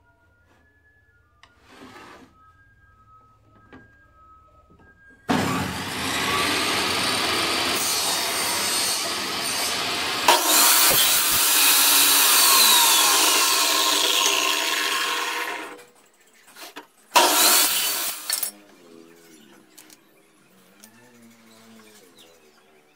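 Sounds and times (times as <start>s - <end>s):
table saw cutting wood: 5.3s - 15.9s, 17.2s - 18.5s.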